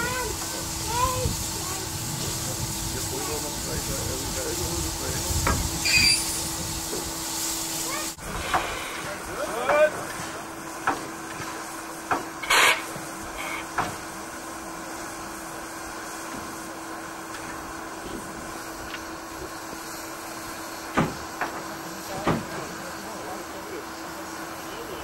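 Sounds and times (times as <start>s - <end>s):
loud hiss burst: 0.0s - 9.5s
steam locomotive hum: 0.0s - 25.0s.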